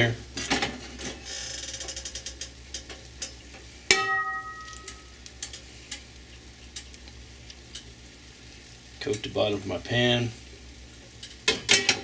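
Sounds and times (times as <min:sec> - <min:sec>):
metal pot clanging on burner: 0:03.9 - 0:05.0, 0:11.4 - 0:12.0.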